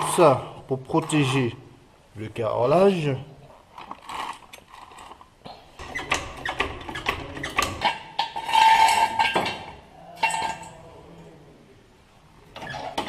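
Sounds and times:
metal knocks and clanks: 5.8s - 10.8s
pitched metal scrape: 5.8s - 10.8s.

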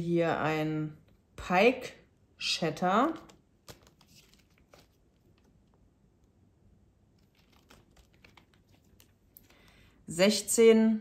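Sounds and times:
plastic packaging crinkling: 3.2s - 5.6s, 7.2s - 9.9s.

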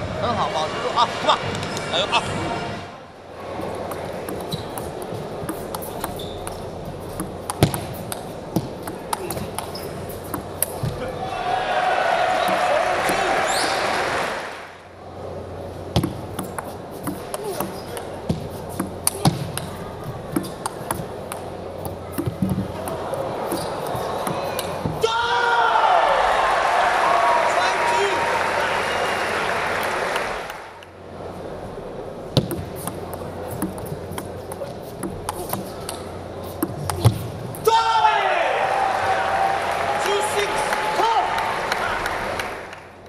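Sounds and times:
table tennis ball clicks: 3.6s - 11.0s, 32.4s - 37.2s
crowd murmur: 18.9s - 25.0s.

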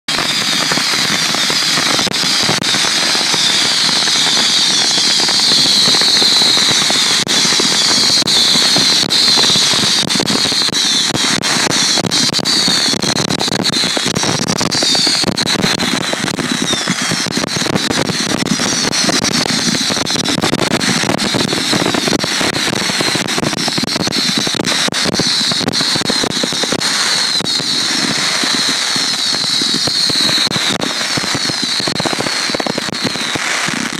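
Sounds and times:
fireworks bangs and crackling: 0.0s - 33.9s
falling high whistling: 0.3s - 11.2s, 25.2s - 33.5s.

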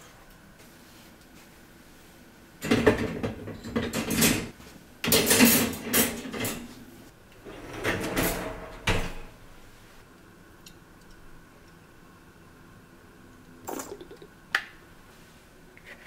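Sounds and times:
metal dishwasher racks clattering: 2.6s - 6.8s, 7.5s - 9.4s.

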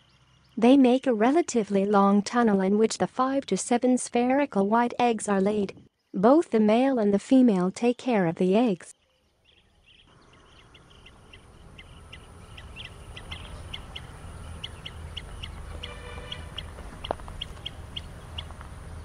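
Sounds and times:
birds chirping high: 8.9s - 19.0s
bird trill: 9.0s - 19.0s.

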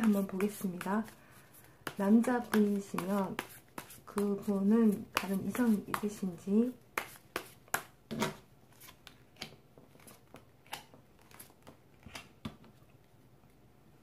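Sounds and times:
cards shuffled and dealt: 0.0s - 6.3s.

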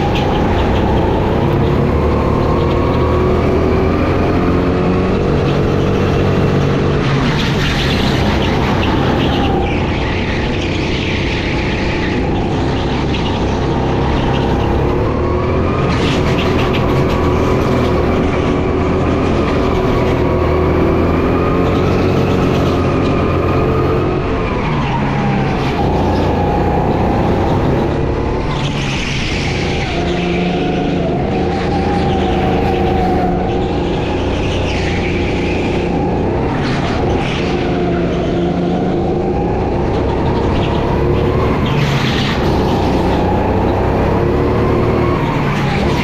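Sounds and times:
go-kart engine revving: 0.0s - 46.0s.

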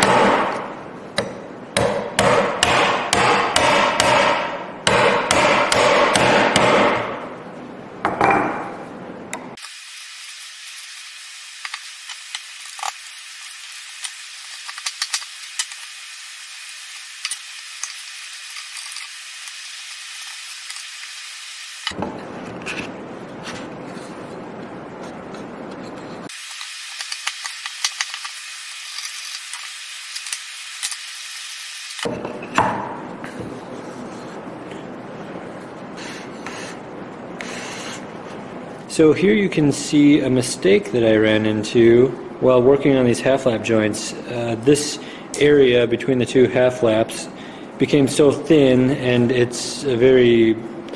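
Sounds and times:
chisel strikes: 0.0s - 7.1s.

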